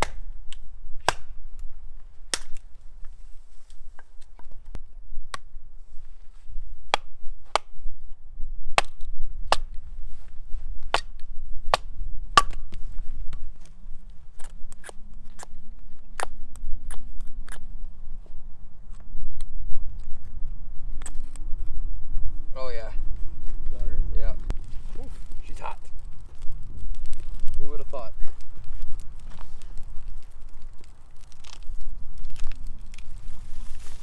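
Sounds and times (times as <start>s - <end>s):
hatchet chopping wood: 0.0s - 1.3s, 8.7s - 9.7s, 10.9s - 12.8s.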